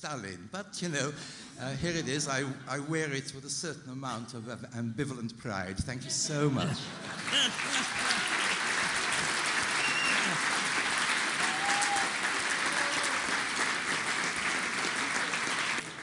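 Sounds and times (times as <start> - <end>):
audience applauding: 7.0 - 16.0.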